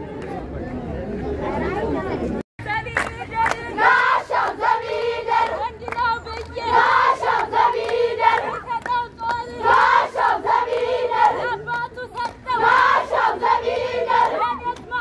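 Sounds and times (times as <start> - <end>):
girls singing in chorus: 3.7 - 15.0.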